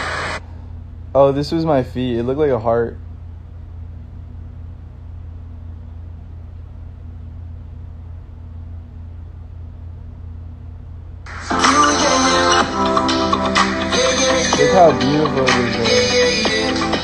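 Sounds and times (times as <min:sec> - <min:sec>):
music with a beat: 0:11.3 - 0:17.0.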